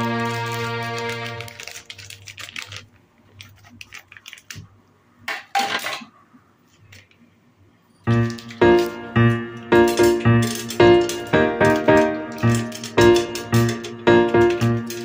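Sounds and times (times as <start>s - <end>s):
background music with held notes: 0.0s - 1.6s, 8.1s - 15.0s
plastic snack packet rustling: 0.0s - 4.8s, 8.1s - 15.0s.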